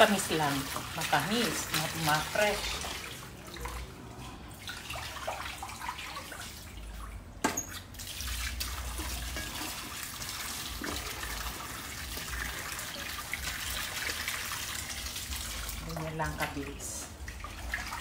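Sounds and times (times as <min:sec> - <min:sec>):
tap water running into sink: 0:07.4 - 0:16.7.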